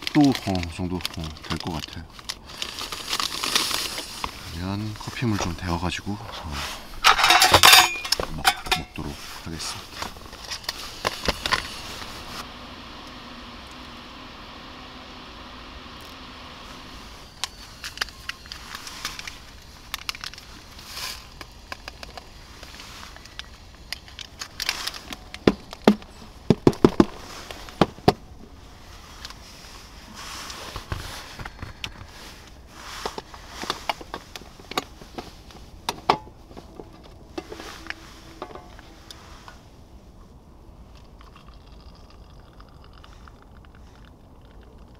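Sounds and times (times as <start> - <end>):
packaging crinkling: 0.0 - 5.6, 17.2 - 28.1
camp gear clicks and knocks: 7.0 - 9.1, 32.9 - 39.0.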